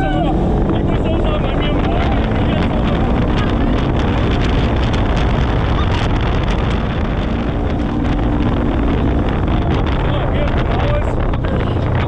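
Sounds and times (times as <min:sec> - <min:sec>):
utv engine running: 0:00.0 - 0:12.0
wind buffeting microphone: 0:00.0 - 0:12.0.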